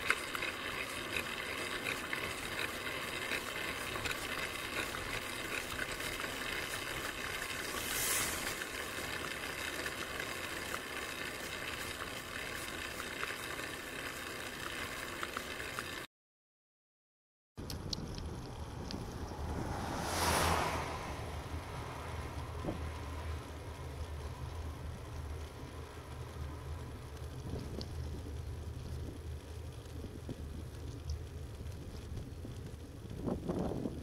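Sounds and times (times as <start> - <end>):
bike rattling clicks: 0.0 - 7.8, 17.6 - 19.4
road and wind noise: 0.0 - 16.0, 17.6 - 34.0
car overtaking: 18.2 - 27.7.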